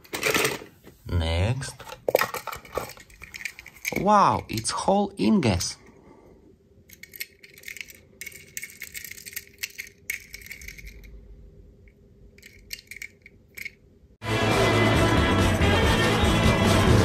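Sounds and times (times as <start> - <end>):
faint steady hum: 0.0 - 14.2
metal toy car clicks and rattles: 1.8 - 4.1, 6.9 - 11.2, 12.4 - 13.8.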